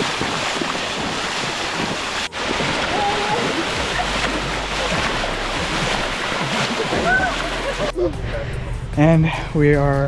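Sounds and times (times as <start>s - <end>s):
river water rushing: 0.0s - 8.0s.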